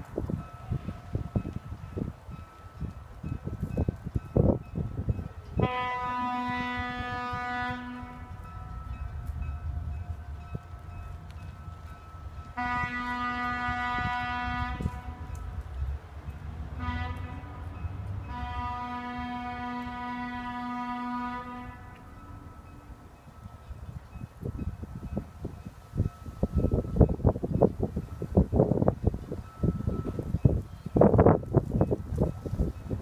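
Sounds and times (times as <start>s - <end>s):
moving train rumble: 0.0s - 33.0s
train horn blasts: 5.6s - 9.0s, 12.5s - 15.4s, 16.7s - 22.7s.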